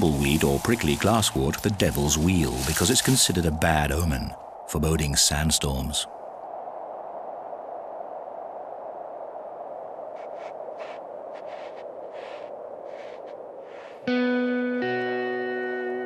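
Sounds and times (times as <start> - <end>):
turtle claws scraping on sand: 0.0 - 3.5, 10.2 - 14.1
wind blowing over sand: 0.0 - 14.4.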